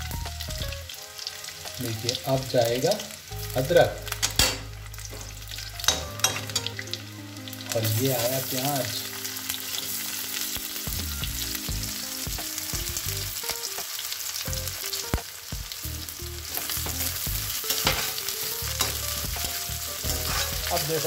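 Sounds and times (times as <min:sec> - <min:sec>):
onion sizzling in oil: 0:00.0 - 0:21.0
spatula scraping a pan: 0:16.5 - 0:21.0.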